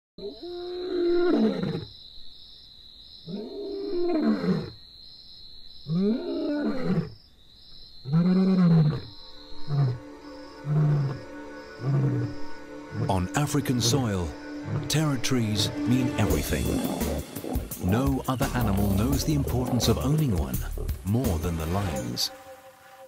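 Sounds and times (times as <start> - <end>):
lion roaring: 10.6 - 15.2, 16.0 - 21.0
lion grunts: 16.2 - 21.0.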